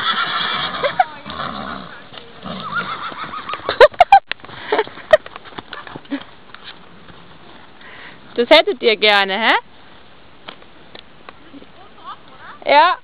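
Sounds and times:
horse whinnying: 0.0 - 3.8.

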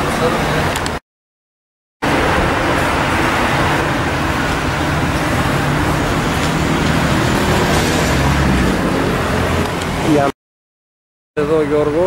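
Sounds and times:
road vehicles passing: 2.0 - 10.4.

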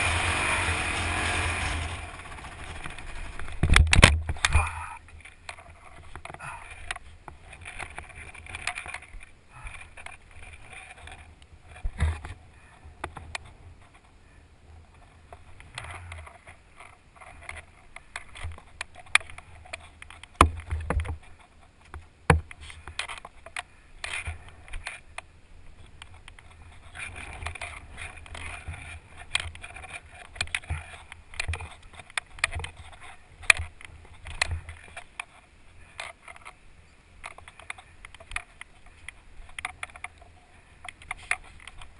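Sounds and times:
wind rumbling on microphone: 0.0 - 16.8
knocks and scrapes in sand: 0.0 - 36.6.

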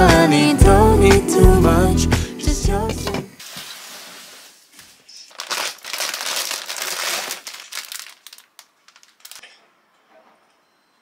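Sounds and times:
plastic packaging crinkling: 3.4 - 9.6.

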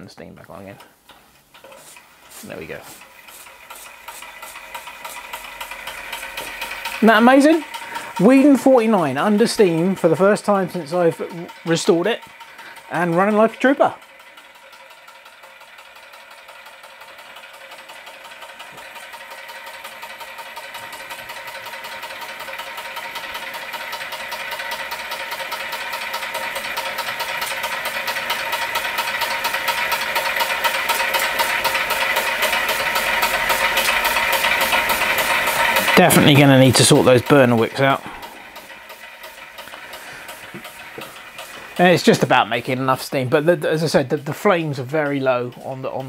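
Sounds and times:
model steam engine clattering: 0.7 - 46.0.

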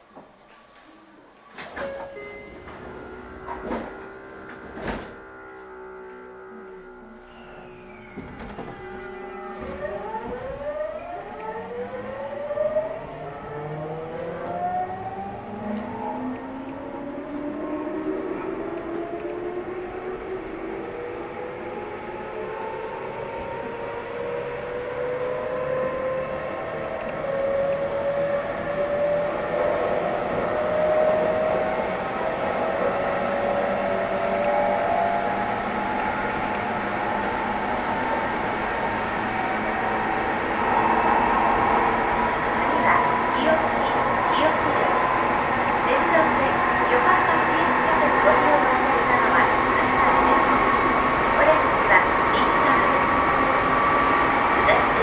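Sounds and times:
train running gear rumble: 1.6 - 55.0
train motor whine rising: 2.6 - 31.0.

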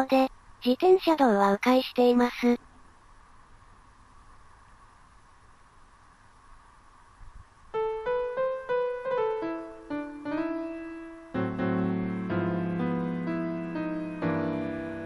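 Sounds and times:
faint steady hiss: 0.0 - 15.0
piano music: 7.7 - 15.0.

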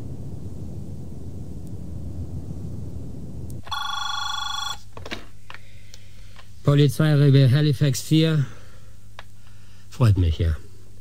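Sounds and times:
telephone ringing: 3.6 - 4.9.

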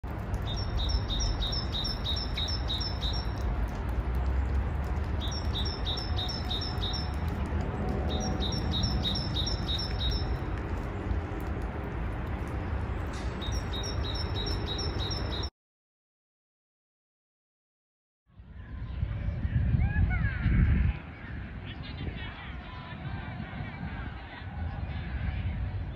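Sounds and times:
songbird singing high notes: 0.5 - 3.4, 8.1 - 10.4, 13.4 - 15.5
low rumble: 7.1 - 9.4.

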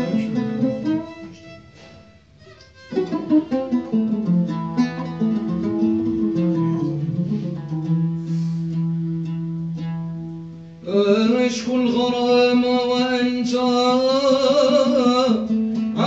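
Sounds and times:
violin playing: 0.0 - 7.4
plucked string instrument: 0.0 - 16.0.

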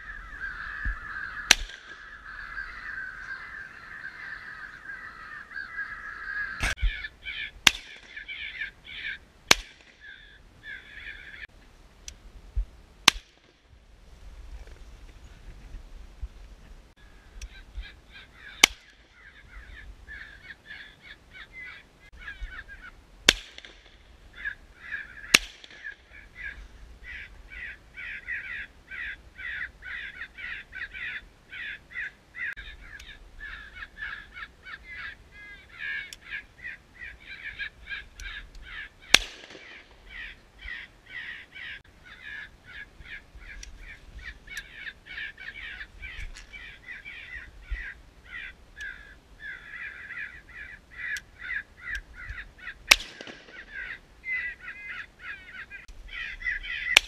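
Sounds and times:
crows cawing: 0.0 - 11.5, 17.0 - 23.0, 23.6 - 57.0
shotgun shots: 1.5 - 2.0, 25.3 - 26.0, 39.1 - 40.1, 52.9 - 53.9.

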